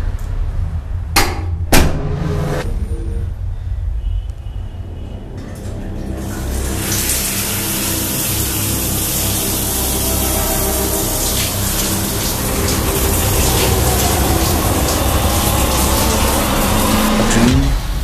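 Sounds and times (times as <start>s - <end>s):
shower spray pouring: 5.6s - 17.5s.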